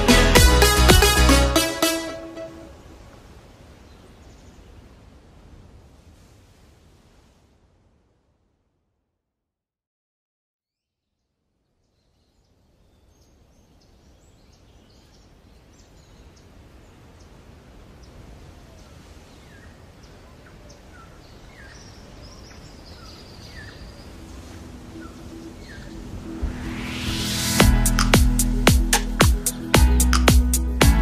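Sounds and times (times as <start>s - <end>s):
steady outdoor hiss: 0.0s - 8.9s, 11.4s - 31.0s
birds chirping: 12.0s - 30.8s.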